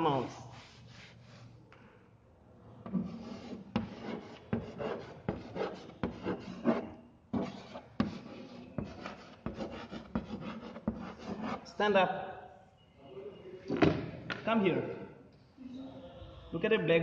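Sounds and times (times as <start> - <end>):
chalk scraping on blackboard: 0.0 - 1.6, 2.9 - 11.8
chalk tapping on board: 3.0 - 11.6.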